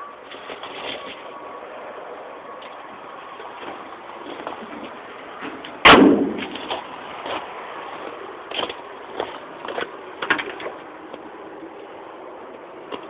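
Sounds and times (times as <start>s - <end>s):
metal hood slamming shut: 5.8s - 6.6s
small clicks and knocks: 8.5s - 11.3s.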